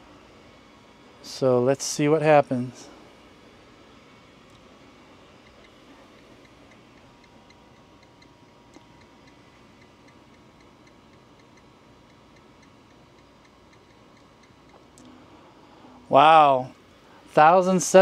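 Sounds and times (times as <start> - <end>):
faint even ticking: 5.4 - 15.2.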